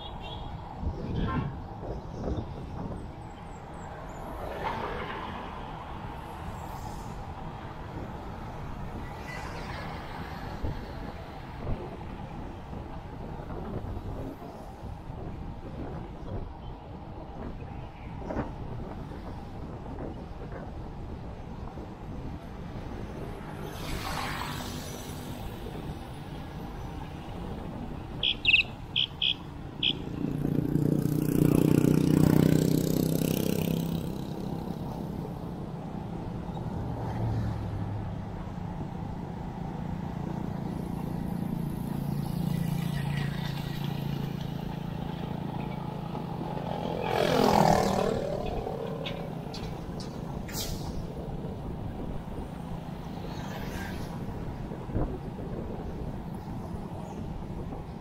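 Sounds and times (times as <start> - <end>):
road traffic: 0.0 - 58.0
wind noise on microphone: 0.0 - 58.0
motor vehicle passing: 23.1 - 55.8.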